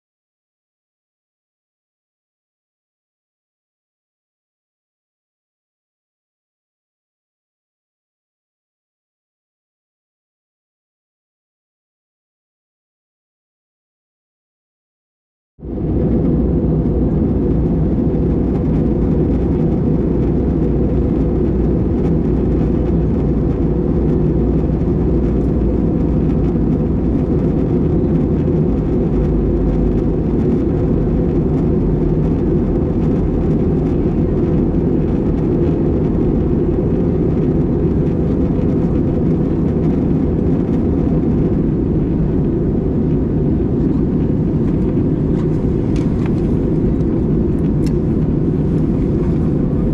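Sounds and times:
airliner cabin engine noise: 15.6s - 49.9s.

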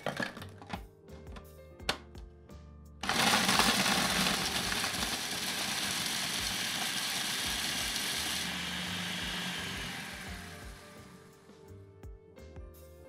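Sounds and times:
crumbs whirling in plastic bowl: 3.0s - 11.0s
food processor motor whirring: 3.0s - 11.5s.

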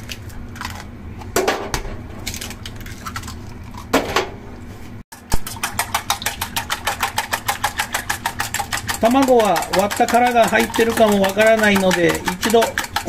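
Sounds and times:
whisk clicking in metal bowl: 5.2s - 13.0s.

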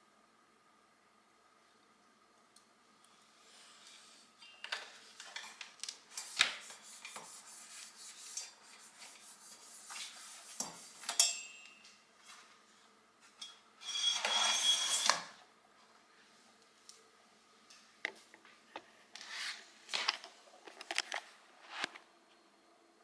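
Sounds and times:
rustling scrape: 19.2s - 20.1s.

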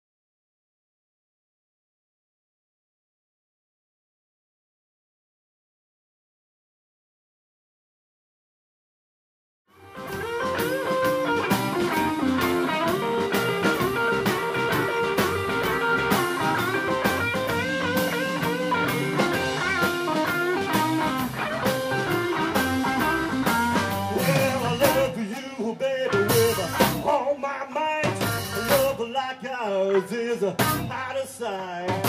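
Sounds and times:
blues band playing: 9.7s - 32.0s
harmonica lead: 9.8s - 27.1s.

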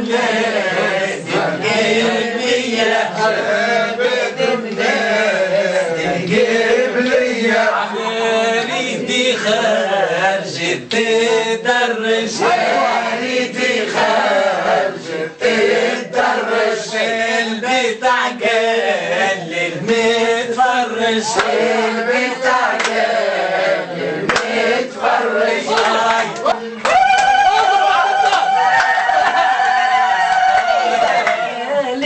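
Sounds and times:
group singing in unison: 0.0s - 26.9s
hand claps: 21.3s - 21.6s, 22.7s - 23.1s, 24.2s - 24.6s, 25.7s - 27.6s, 28.2s - 29.5s, 30.3s - 31.5s.

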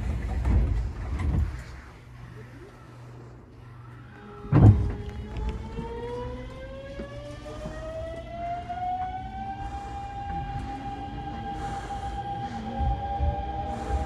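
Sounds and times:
low running rumble: 0.0s - 14.0s
train motors whining: 3.6s - 14.0s
train starting thump: 4.4s - 5.9s.

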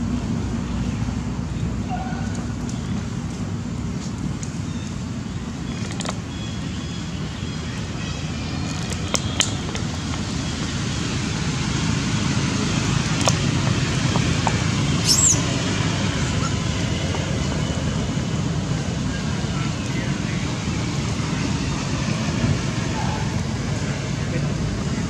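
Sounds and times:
low outdoor rumble: 0.0s - 25.0s
short high chirp: 15.0s - 15.4s.

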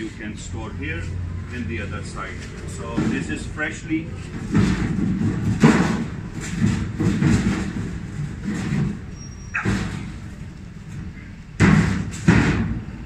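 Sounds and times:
steel sliding door scraping: 1.9s - 11.2s
metal door bang: 4.4s - 10.4s, 11.6s - 13.0s.

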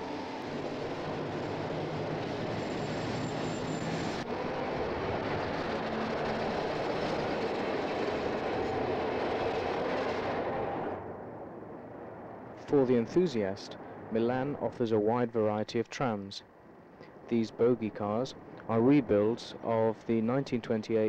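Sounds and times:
streetcar rumbling on rails: 0.0s - 11.0s.

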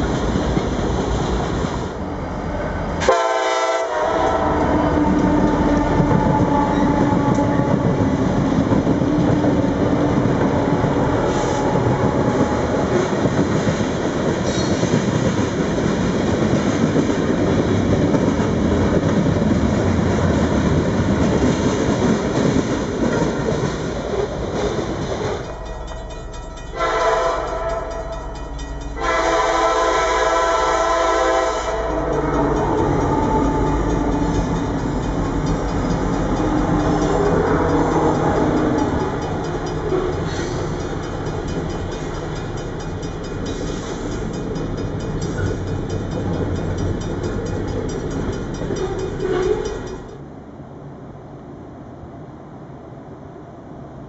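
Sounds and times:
freight train rumbling: 0.0s - 54.0s
train chord horn: 3.0s - 8.4s, 10.5s - 13.0s, 26.6s - 35.1s.

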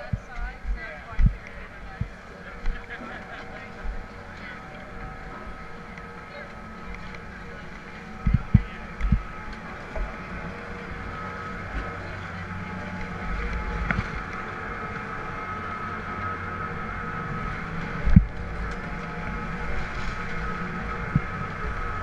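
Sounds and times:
chairlift machinery humming: 0.0s - 22.0s
thin high whine: 0.0s - 22.0s.

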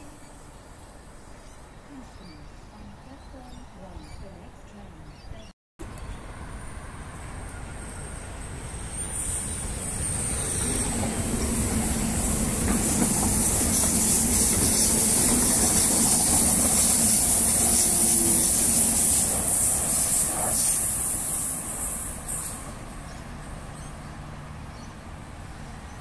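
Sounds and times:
train motors humming: 5.8s - 25.9s
high hiss of passing carriages: 5.9s - 25.8s
train wheels rolling: 7.1s - 23.9s.

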